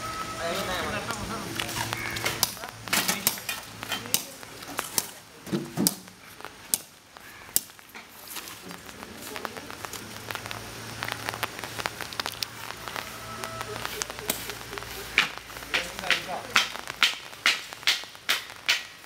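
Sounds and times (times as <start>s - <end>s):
sharp clicks and knocks: 14.0s - 19.0s.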